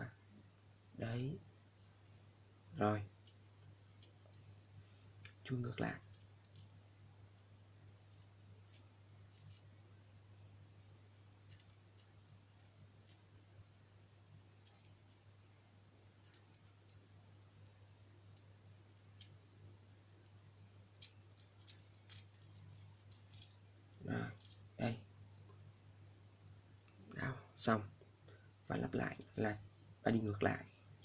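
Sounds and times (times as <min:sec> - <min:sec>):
low steady hum: 0:00.0 - 0:31.0
metal puzzle pieces clicking: 0:05.9 - 0:07.2, 0:07.9 - 0:09.9, 0:11.5 - 0:13.2, 0:14.6 - 0:15.6, 0:16.2 - 0:17.0, 0:21.0 - 0:23.6, 0:24.2 - 0:24.6.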